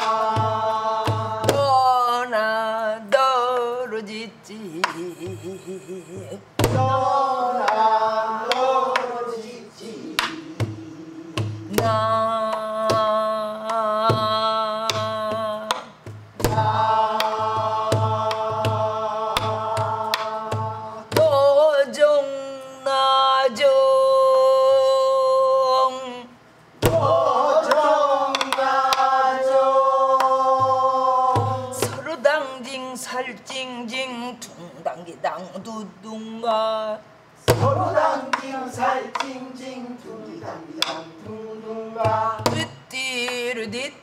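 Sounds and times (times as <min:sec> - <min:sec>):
woman singing wordless melody: 0:00.0 - 0:08.5, 0:09.6 - 0:26.4, 0:30.6 - 0:44.0
barrel drum strokes: 0:10.1 - 0:13.1.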